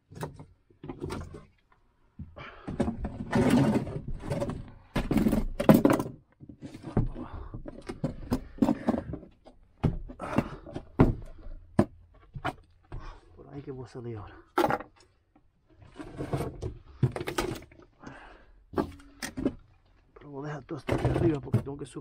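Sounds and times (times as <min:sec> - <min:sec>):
thuds and knocks: 0:02.2 - 0:13.2.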